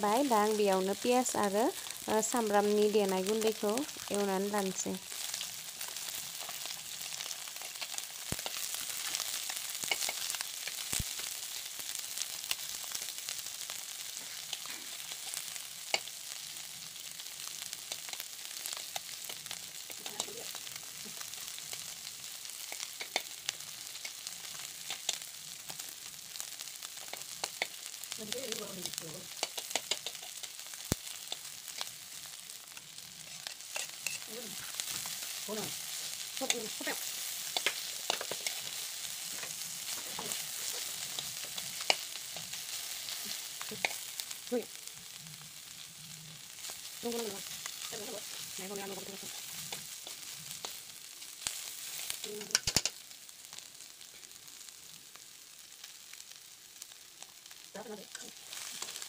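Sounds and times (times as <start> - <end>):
food sizzling in hot oil: 0.0 - 59.0
metal spatula scraping a pan: 5.2 - 10.9, 28.9 - 44.1.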